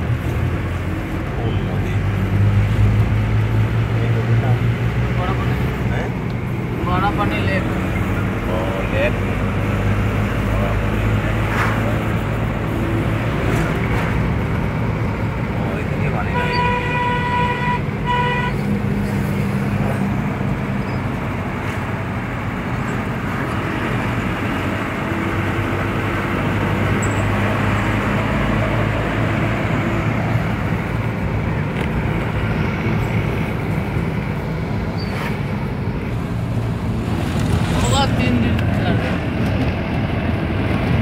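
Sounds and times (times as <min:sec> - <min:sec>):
car engine and tyre noise: 0:00.0 - 0:41.0
car horn: 0:16.2 - 0:18.7.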